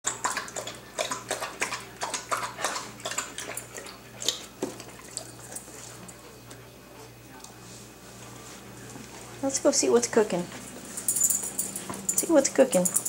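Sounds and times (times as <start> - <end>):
dog lapping water: 0.0 - 6.2
metal bowl clinks: 10.9 - 13.0.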